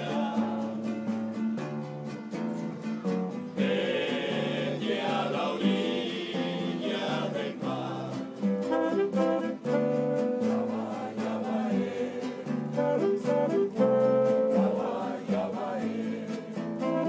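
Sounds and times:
strummed guitars: 0:00.0 - 0:17.0
saxophone melody: 0:08.6 - 0:15.8, 0:16.7 - 0:17.0.

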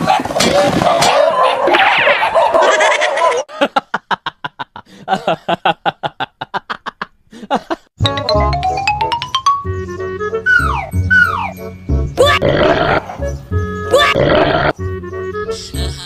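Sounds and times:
music with rising sliding tone: 0:08.0 - 0:12.2.

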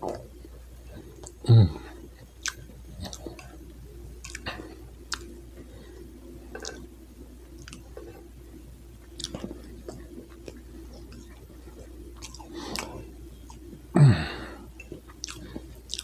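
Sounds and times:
chewing cake: 0:00.0 - 0:16.0
mouth sounds: 0:01.2 - 0:03.6.

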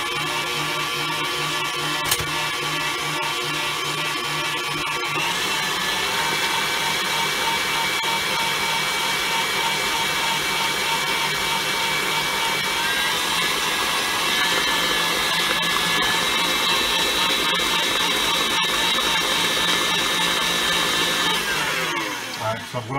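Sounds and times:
stand mixer motor whine: 0:00.0 - 0:22.9.

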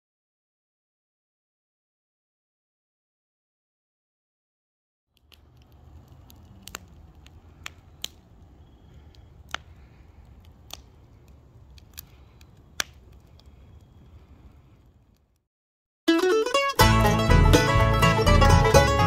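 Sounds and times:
fire crackling and popping: 0:05.2 - 0:15.4.

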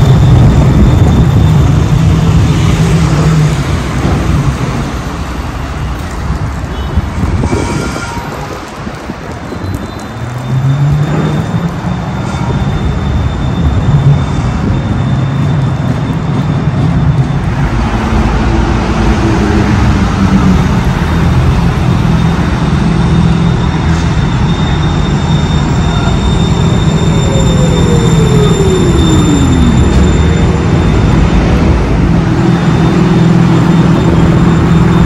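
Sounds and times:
tram rumbling along track: 0:00.0 - 0:35.0.

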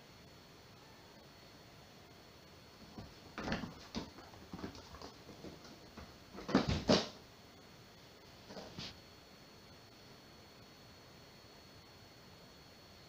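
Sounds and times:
kitten paws scuffling and thumping: 0:02.8 - 0:07.2, 0:08.5 - 0:09.0.

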